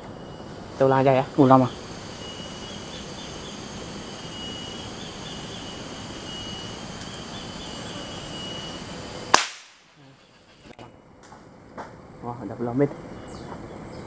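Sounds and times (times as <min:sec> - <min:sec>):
insects chirring: 0:00.0 - 0:14.0
gunshot: 0:09.3 - 0:09.8.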